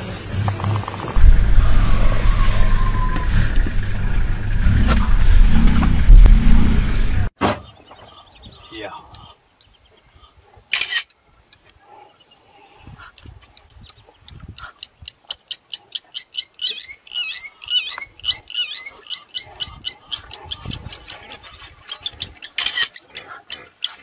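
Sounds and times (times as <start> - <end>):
low rumbles: 0.0 - 7.4.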